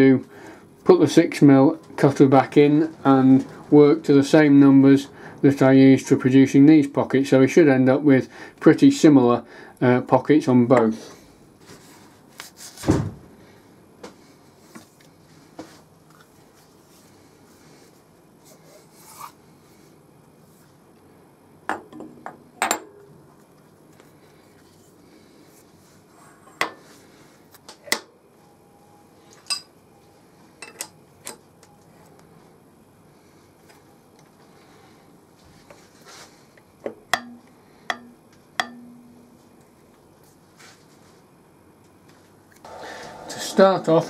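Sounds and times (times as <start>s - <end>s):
faint rustle of handling: 11.6s - 12.8s, 14.2s - 20.9s, 23.4s - 27.5s, 31.9s - 36.6s, 39.8s - 41.4s
metal scraping: 42.6s - 44.0s.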